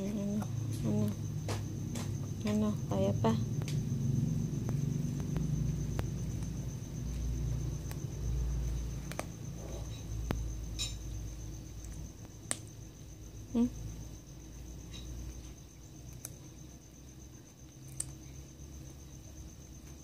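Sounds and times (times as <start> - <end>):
low handling rumble: 0.0 - 11.6
kitten chewing bone: 3.4 - 12.9, 15.0 - 16.7, 17.4 - 19.0.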